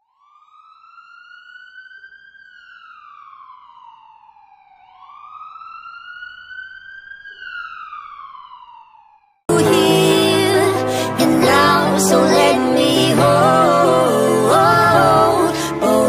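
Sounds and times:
police siren wailing: 0:00.0 - 0:09.7.

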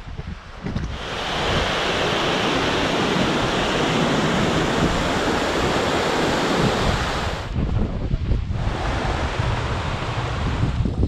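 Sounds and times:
stream cascading over rocks: 0:00.9 - 0:07.5.

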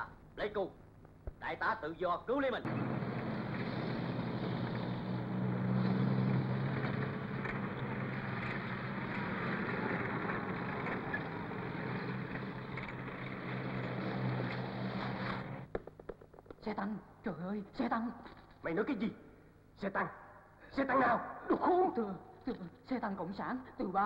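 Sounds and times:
tank engine running: 0:02.7 - 0:15.7.

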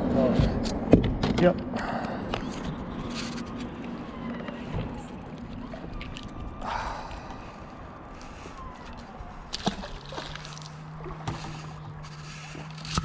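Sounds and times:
low steady hum: 0:00.0 - 0:13.0
fish splashing into water: 0:08.8 - 0:13.0.

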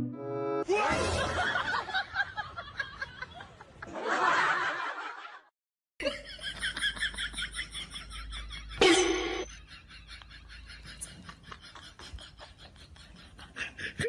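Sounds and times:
person snickering: 0:12.0 - 0:14.0.

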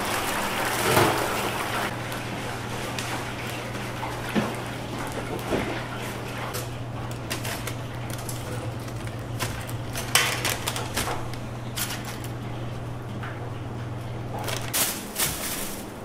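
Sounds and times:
low hum of kitchen equipment: 0:00.0 - 0:16.0
paper bags rustling: 0:02.1 - 0:12.7, 0:14.2 - 0:16.0.

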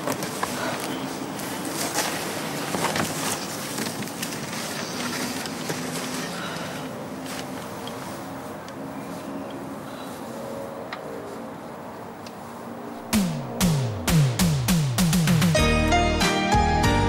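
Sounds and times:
cardboard rustling and crackling: 0:00.0 - 0:06.3.

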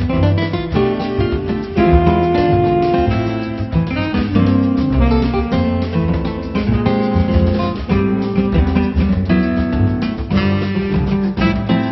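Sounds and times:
strummed acoustic guitar music: 0:00.0 - 0:11.9.

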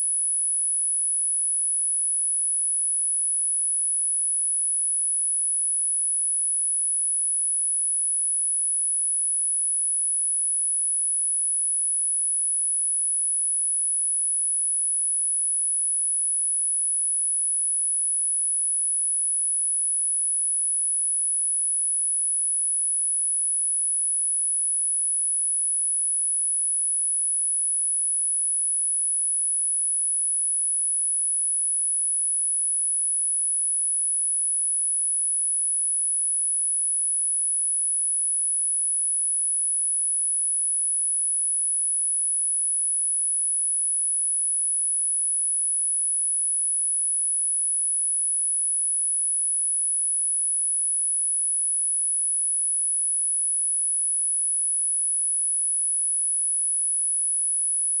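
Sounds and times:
high sine wave test tone: 0:57.5 - 0:58.0.

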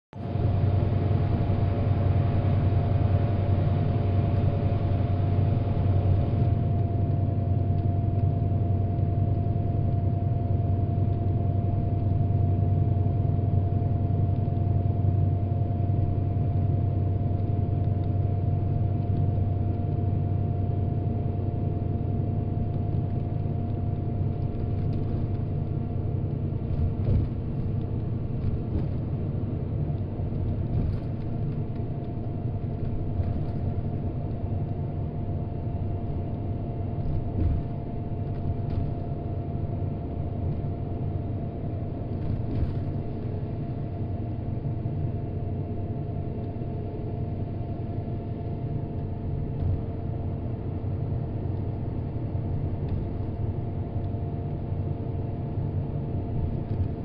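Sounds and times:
bus engine and road rumble: 0:00.1 - 0:57.0
faint steady whine: 0:00.2 - 0:57.0.

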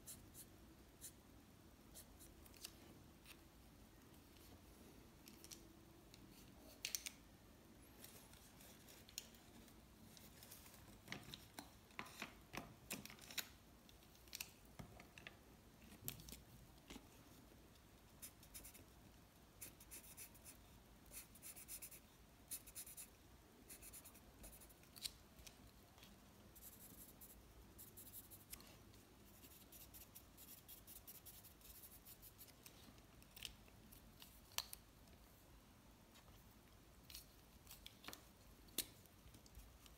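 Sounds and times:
marker scratching on paper: 0:19.6 - 0:23.1.

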